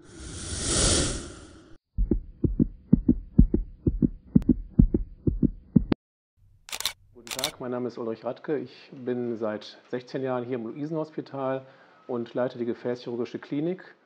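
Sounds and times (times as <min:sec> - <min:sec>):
whoosh: 0:00.0 - 0:01.8
heartbeat thumps: 0:01.9 - 0:06.0
sharp click: 0:06.4 - 0:07.6.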